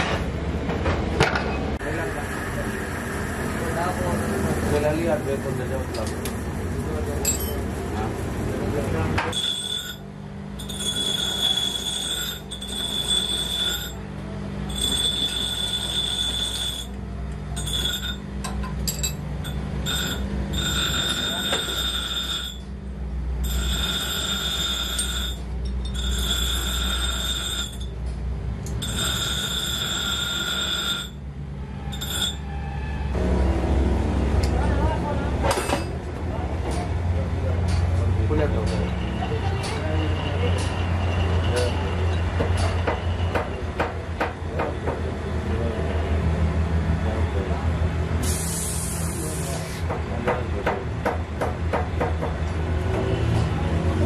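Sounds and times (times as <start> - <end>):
machinery humming: 0.0 - 49.6
high-pitched whine: 1.8 - 6.1, 8.5 - 14.1, 14.7 - 18.3, 18.9 - 22.7, 23.4 - 27.9, 28.7 - 35.9
metal lathe humming: 9.3 - 14.0, 14.7 - 17.0, 19.4 - 22.8, 23.4 - 27.9, 28.7 - 33.4
burst of hiss: 48.2 - 49.8.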